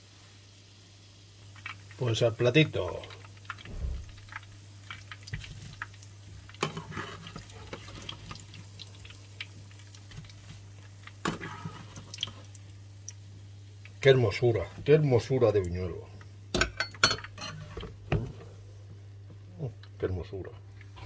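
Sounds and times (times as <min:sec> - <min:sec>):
oil sizzling in a frying pan: 0:00.0 - 0:18.4
metal spoon scraping a pan: 0:06.6 - 0:07.9.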